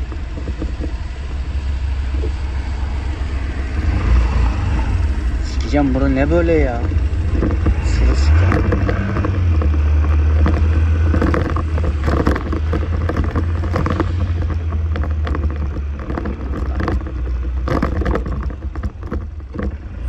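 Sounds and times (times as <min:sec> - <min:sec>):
short knocks and rustles: 0:00.0 - 0:01.0, 0:05.6 - 0:19.9
motorcycle riding in traffic: 0:00.0 - 0:20.0.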